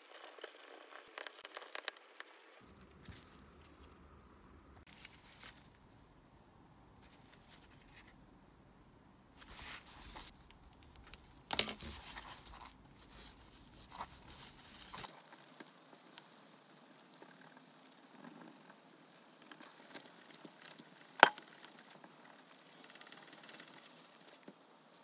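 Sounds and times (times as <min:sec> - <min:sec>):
cloth rustling and rubbing: 0:04.8 - 0:05.8, 0:09.4 - 0:10.4, 0:11.6 - 0:15.2.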